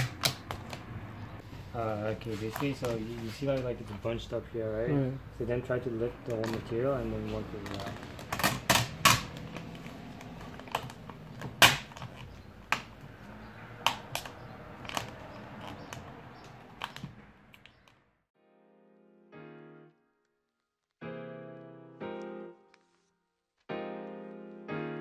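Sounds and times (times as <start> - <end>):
vinyl film crackling: 6.2 - 13.2
soft piano music: 18.4 - 20.3, 21.0 - 25.0.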